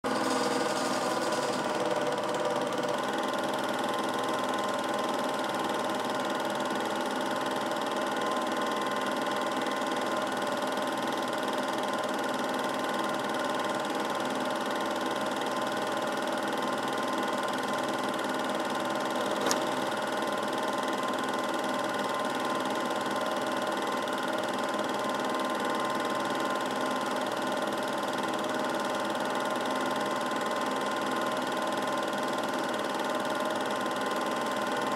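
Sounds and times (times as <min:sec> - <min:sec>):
film projector whirring: 0:00.0 - 0:34.9.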